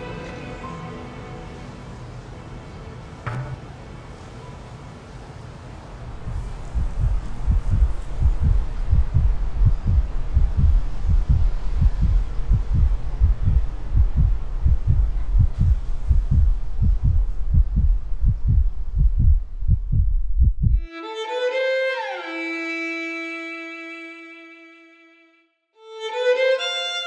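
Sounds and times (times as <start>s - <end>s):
low hum: 6.0s - 20.9s
heartbeat thumps: 6.2s - 20.9s.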